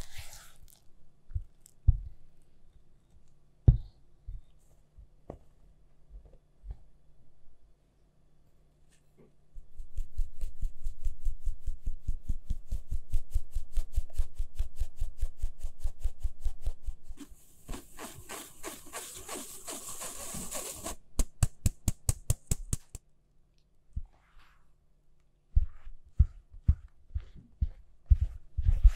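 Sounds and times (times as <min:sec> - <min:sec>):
fingertip rubbing powder through mesh: 0:00.0 - 0:00.9, 0:09.6 - 0:23.0, 0:25.5 - 0:28.9.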